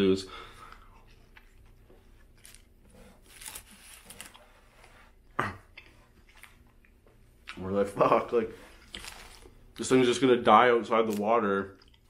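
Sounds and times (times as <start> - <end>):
soft chewing: 0.4 - 10.0, 11.1 - 12.0
paper napkin rustle: 2.4 - 5.2.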